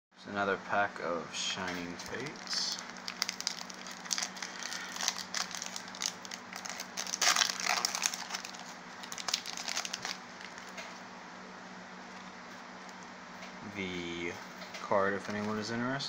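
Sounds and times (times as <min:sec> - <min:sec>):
foil wrapper crinkling: 0:01.6 - 0:11.0.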